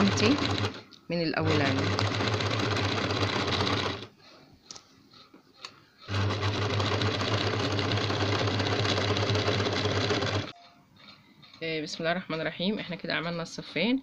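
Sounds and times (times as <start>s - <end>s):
sewing machine stitching: 0.0s - 4.1s, 6.0s - 10.5s.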